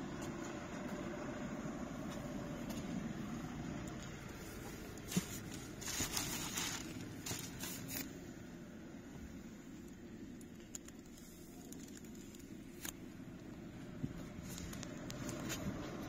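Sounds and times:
low background rumble: 0.0 - 16.0
plastic wrap crinkling: 5.1 - 8.1, 10.6 - 13.0.

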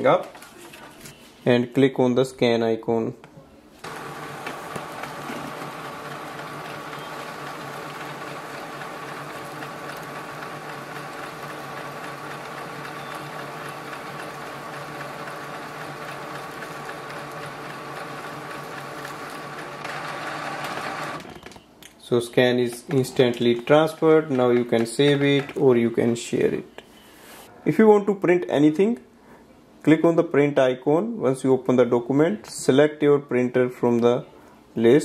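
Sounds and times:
printer motor whirring: 3.8 - 21.6.

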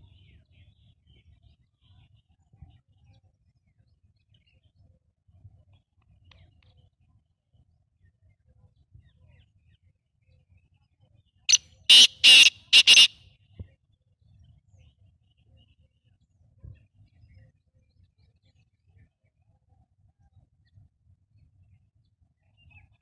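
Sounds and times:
francolin calling harsh notes: 11.9 - 13.1.

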